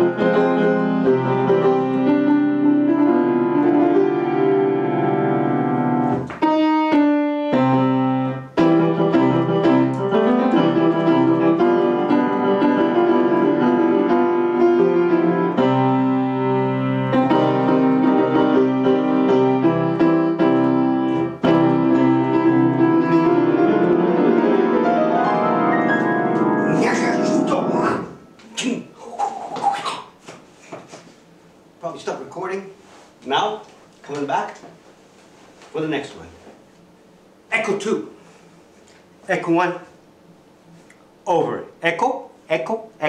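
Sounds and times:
solo piano playing: 0.0 - 28.4.

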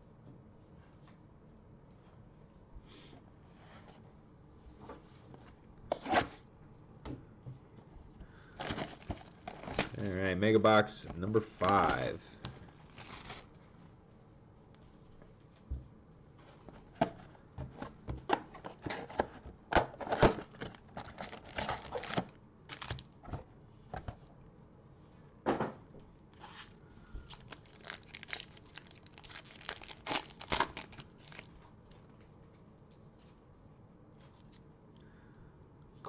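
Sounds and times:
card packs tearing and crinkling: 8.6 - 10.2, 11.2 - 13.5, 20.0 - 23.2, 26.6 - 31.5.

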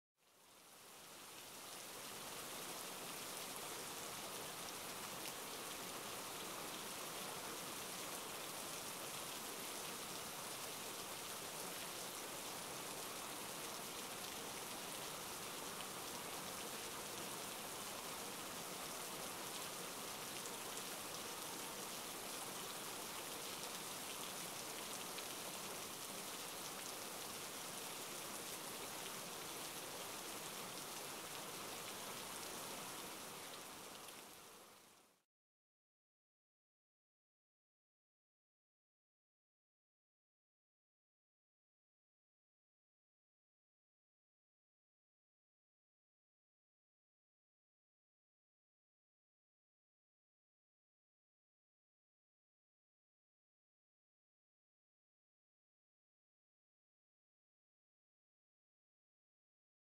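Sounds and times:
steady rainfall: 0.2 - 35.2.

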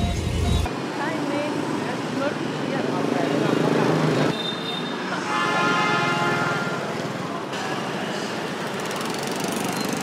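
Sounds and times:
street traffic noise: 0.0 - 10.0
car horn: 4.3 - 6.8.

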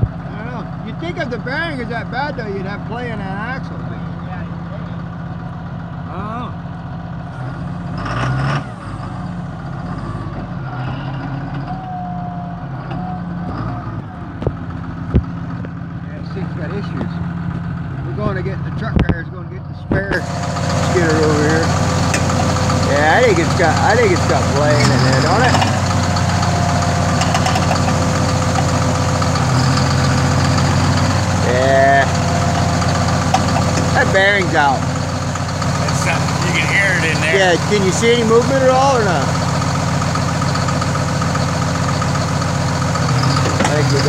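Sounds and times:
diesel engine running: 0.0 - 44.0
wheel squealing: 20.2 - 44.0.

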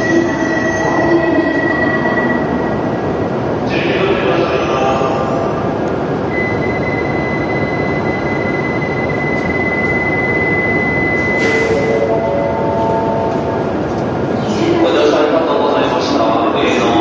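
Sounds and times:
train rushing hum: 0.0 - 17.0
steady high tone: 6.3 - 13.8.

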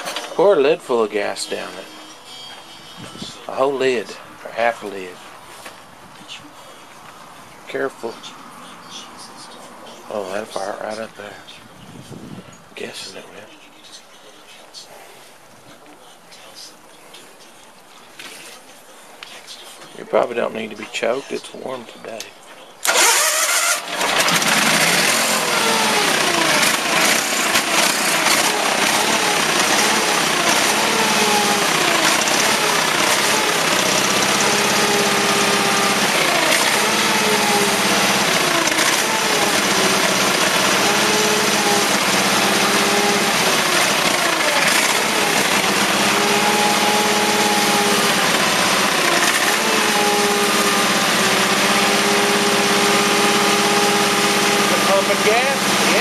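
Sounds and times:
lawn tractor engine running: 22.8 - 56.0.

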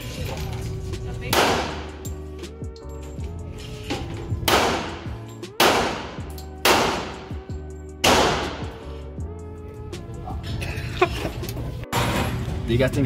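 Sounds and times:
background music: 0.0 - 13.0
pistol shots indoors: 1.3 - 2.1, 4.4 - 8.8.

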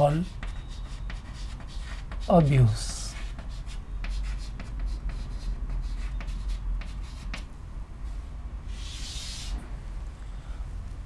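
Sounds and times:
chalk scraping stroke: 0.0 - 7.5, 8.7 - 9.6
chalk tapping and scratching: 0.0 - 7.5, 8.8 - 9.6.

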